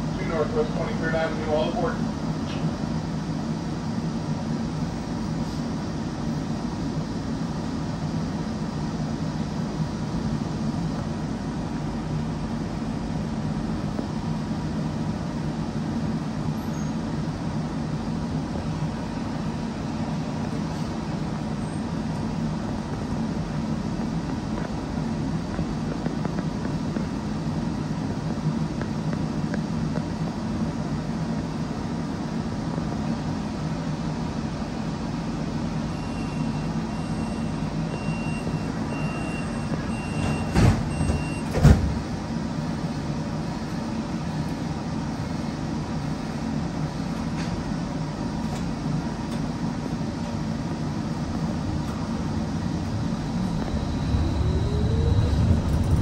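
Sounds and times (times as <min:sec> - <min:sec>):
streetcar equipment humming: 0:00.0 - 0:56.0.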